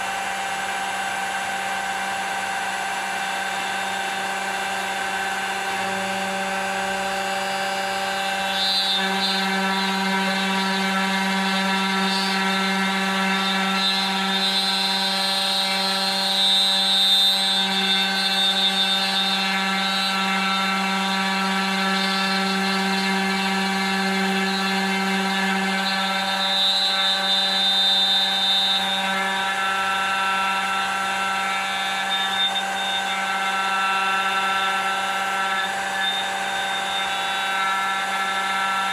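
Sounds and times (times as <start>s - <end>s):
router bit cutting wood: 0.0s - 38.9s
router motor hum: 0.0s - 38.9s.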